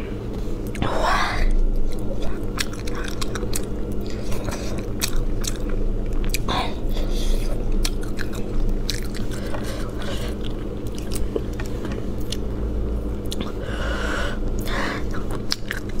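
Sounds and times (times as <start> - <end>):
steady low hum: 0.0 - 16.0
chewing and lip smacks: 1.8 - 6.5, 7.4 - 12.5, 13.2 - 13.6, 14.6 - 16.0.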